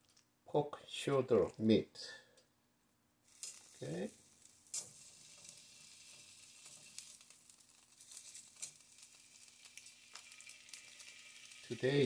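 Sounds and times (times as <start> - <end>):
pork sizzling in frying pan: 3.3 - 12.0.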